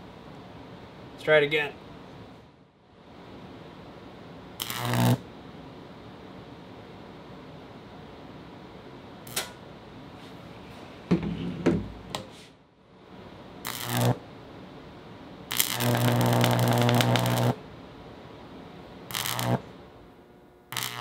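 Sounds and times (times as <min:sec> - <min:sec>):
mains hum: 0:00.0 - 0:21.0
electric snap: 0:04.6 - 0:05.2, 0:09.2 - 0:09.6, 0:13.6 - 0:14.2, 0:15.5 - 0:17.6, 0:19.1 - 0:19.7, 0:20.7 - 0:21.0
high-voltage arc buzzing: 0:04.6 - 0:05.3, 0:09.2 - 0:09.6, 0:13.6 - 0:14.3, 0:15.5 - 0:17.6, 0:19.0 - 0:21.0.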